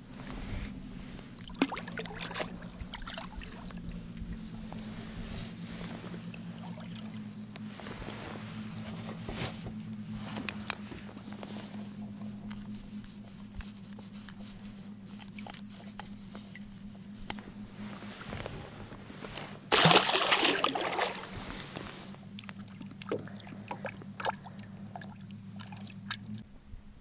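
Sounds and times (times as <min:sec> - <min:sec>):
low hum: 0:00.0 - 0:27.0
loud water splash: 0:19.7 - 0:21.4.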